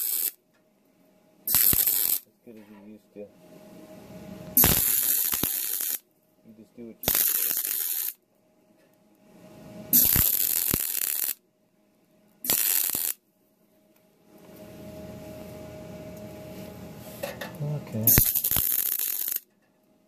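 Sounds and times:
welder crackling: 0.0s - 0.4s, 1.5s - 2.3s, 4.5s - 6.0s, 7.0s - 8.2s, 9.9s - 11.4s, 12.4s - 13.2s, 17.9s - 19.5s
steady low hum: 0.0s - 20.0s.

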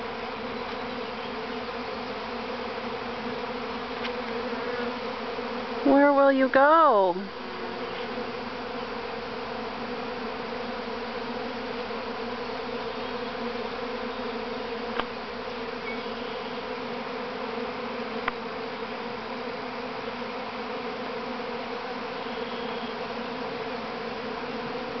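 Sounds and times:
bee swarm humming: 0.0s - 25.0s.

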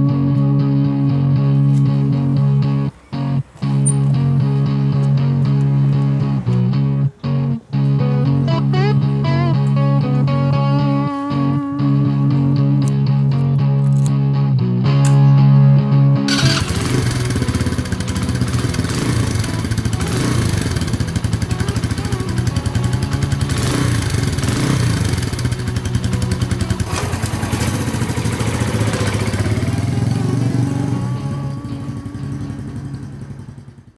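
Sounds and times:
motorcycle engine idling: 16.3s - 33.9s.

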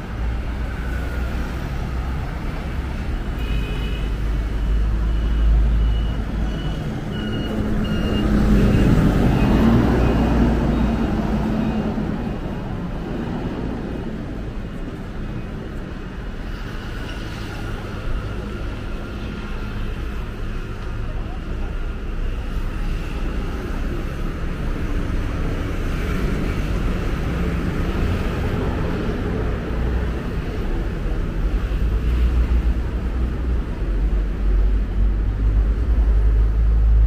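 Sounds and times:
street traffic rumble: 0.0s - 37.0s
faint high beeps: 4.6s - 10.9s.

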